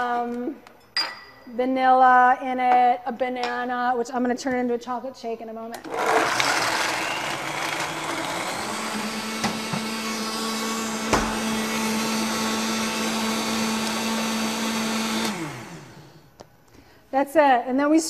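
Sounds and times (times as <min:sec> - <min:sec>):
blender running: 0:05.8 - 0:16.3.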